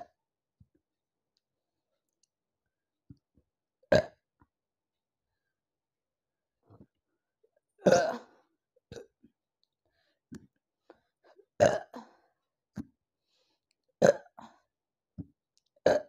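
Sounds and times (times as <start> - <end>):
woman burping loudly: 7.8 - 8.3, 11.6 - 12.1, 14.0 - 14.5.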